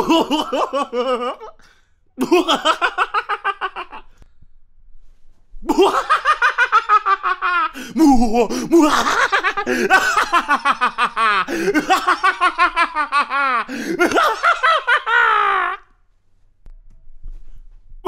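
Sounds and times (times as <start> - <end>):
man laughing loudly: 0.0 - 1.6, 2.2 - 4.1, 5.7 - 15.9
man catching breath: 11.5 - 11.8, 13.7 - 14.0.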